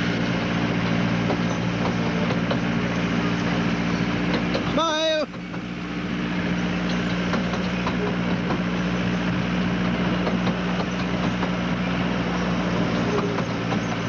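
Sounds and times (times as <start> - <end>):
miniature train engine hum: 0.0 - 14.0
wheel clicks on track: 6.8 - 9.1, 9.8 - 14.0.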